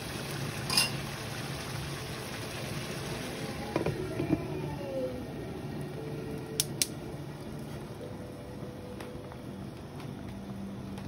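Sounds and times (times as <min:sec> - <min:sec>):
stove and simmering pan hiss: 0:00.0 - 0:11.0
glass lid clinking on pan: 0:00.7 - 0:01.0.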